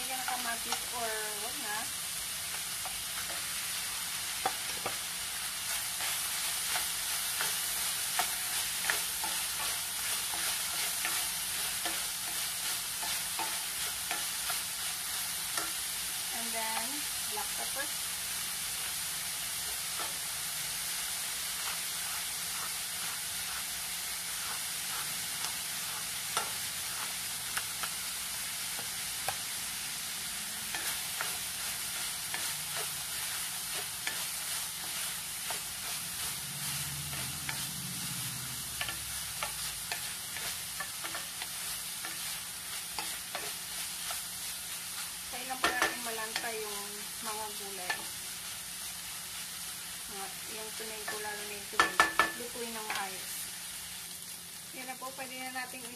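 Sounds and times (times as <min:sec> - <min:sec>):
food sizzling in a metal pan: 0:00.0 - 0:55.9
wooden spoon scraping a pan: 0:02.5 - 0:17.8, 0:21.4 - 0:28.0, 0:30.6 - 0:53.5
spoon knocking against pan: 0:45.6 - 0:46.0, 0:51.8 - 0:52.4.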